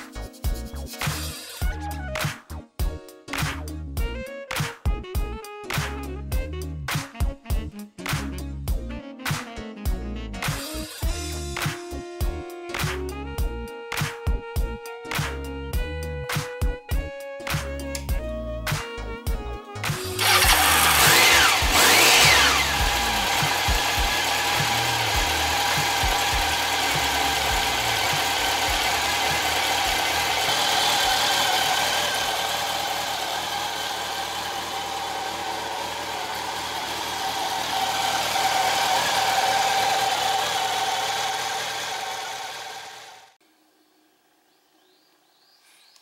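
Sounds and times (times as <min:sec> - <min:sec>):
motorcycle engine revving and idling: 0:19.2 - 0:43.4.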